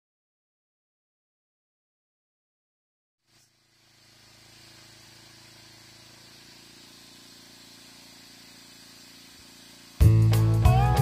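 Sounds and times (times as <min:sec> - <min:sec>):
band sawmill motor humming: 0:03.3 - 0:11.0.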